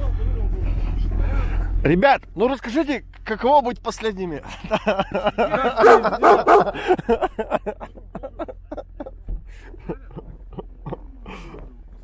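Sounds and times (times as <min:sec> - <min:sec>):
men laughing loudly: 0:04.4 - 0:11.5.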